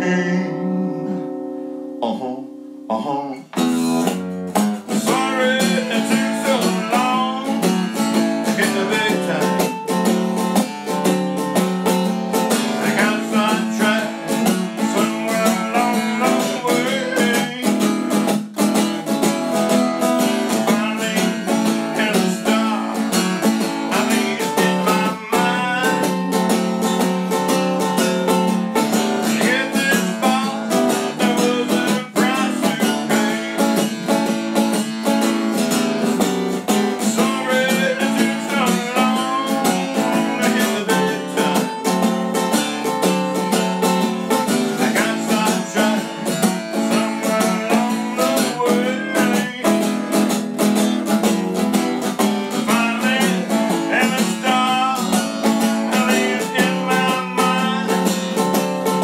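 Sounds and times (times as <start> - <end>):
acoustic guitar strumming: 0.0 - 59.0.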